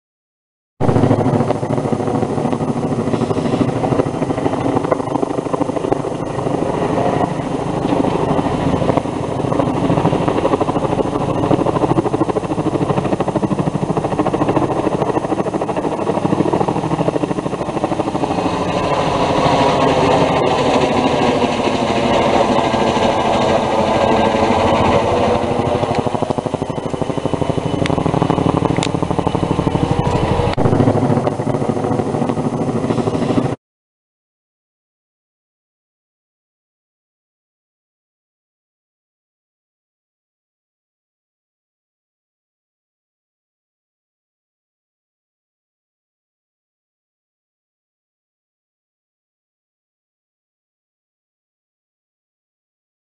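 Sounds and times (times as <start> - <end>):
helicopter engine whine: 0.8 - 33.6
helicopter rotor beating: 0.8 - 33.6.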